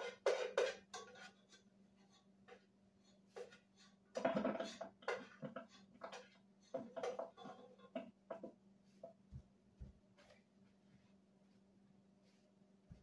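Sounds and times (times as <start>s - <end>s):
spoon scraping a cooking pot: 0.0s - 8.1s.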